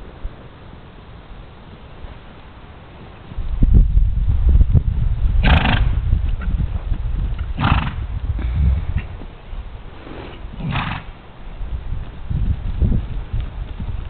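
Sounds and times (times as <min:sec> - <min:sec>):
hoofbeats on sand: 0:05.4 - 0:14.0.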